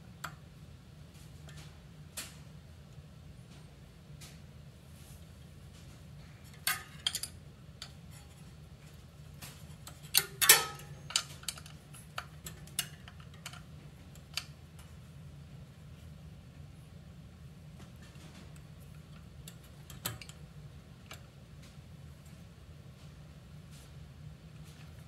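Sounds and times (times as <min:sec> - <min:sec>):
metal parts clinking: 0:10.1 - 0:11.7.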